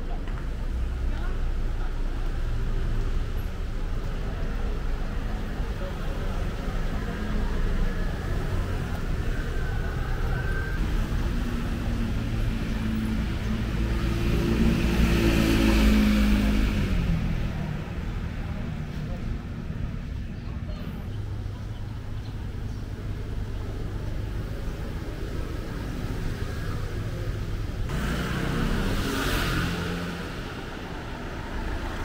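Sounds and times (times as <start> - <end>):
city traffic rumble: 0.0 - 32.0
vehicle passing close: 7.0 - 18.6, 27.8 - 32.0.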